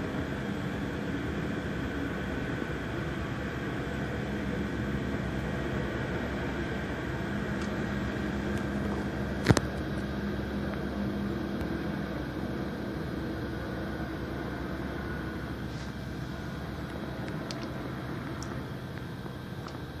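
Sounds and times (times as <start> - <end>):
helicopter rotors and engines: 0.0 - 20.0.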